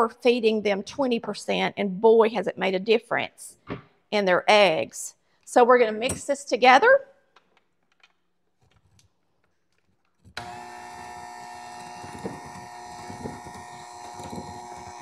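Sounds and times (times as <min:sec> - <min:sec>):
electric hand mixer whining: 0:10.4 - 0:15.0.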